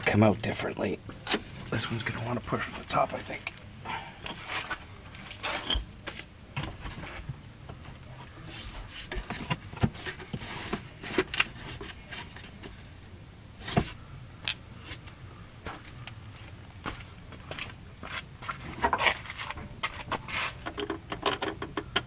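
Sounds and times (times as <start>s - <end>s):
metal clink ringing: 14.4s - 14.8s.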